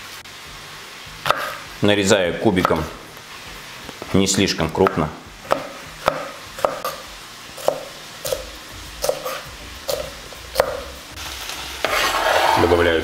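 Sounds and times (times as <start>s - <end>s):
knife chopping on plastic board: 4.8s - 7.0s, 9.0s - 10.8s.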